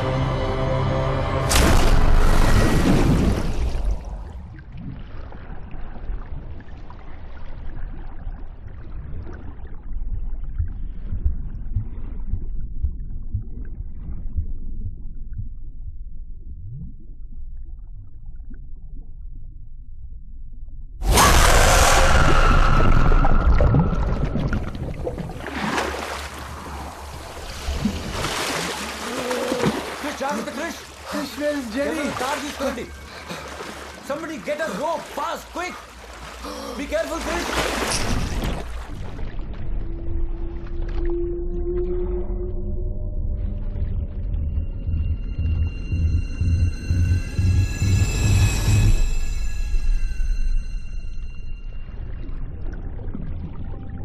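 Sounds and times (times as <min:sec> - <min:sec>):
underwater rumble of water: 0:01.7 - 0:21.0, 0:21.6 - 0:30.0, 0:37.9 - 0:54.0
soft low thumps: 0:09.6 - 0:21.0, 0:43.0 - 0:48.8
rushing churning water: 0:21.1 - 0:39.5.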